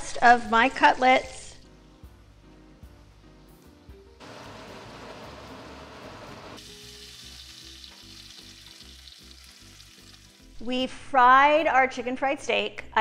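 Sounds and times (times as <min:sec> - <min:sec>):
cutlets sizzling in hot oil: 0:04.3 - 0:10.6.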